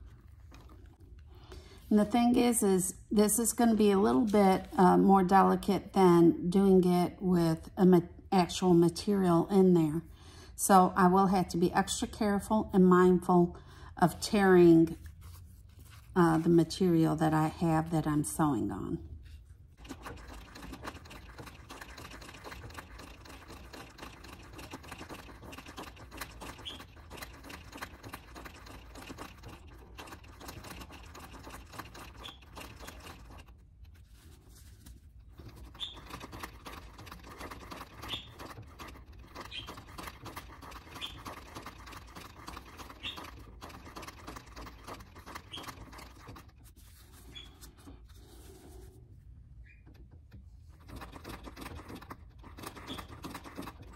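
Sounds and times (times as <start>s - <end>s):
sewing machine stitching: 19.7s - 33.6s, 35.3s - 46.6s, 50.7s - 53.9s.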